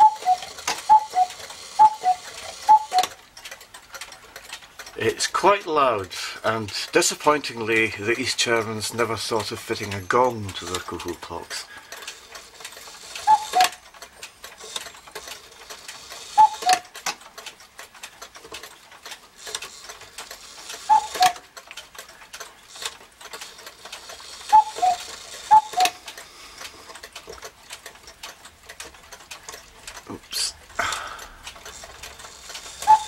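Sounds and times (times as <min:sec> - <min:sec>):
cuckoo clock calling: 0:00.0 - 0:18.3, 0:19.1 - 0:33.0
clock mechanism click: 0:00.0 - 0:33.0
clock ticking: 0:00.0 - 0:33.0.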